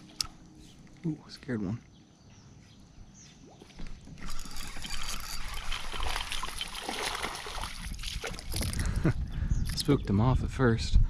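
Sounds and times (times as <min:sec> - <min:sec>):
fish splashing in water: 0:03.6 - 0:08.7.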